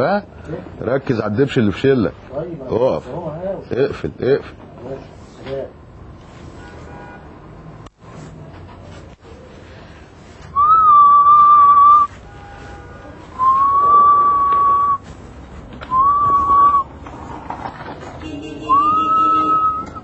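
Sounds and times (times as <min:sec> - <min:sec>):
long whistled notes: 0:10.6 - 0:12.1, 0:13.4 - 0:15.0, 0:15.9 - 0:16.9, 0:18.7 - 0:20.0.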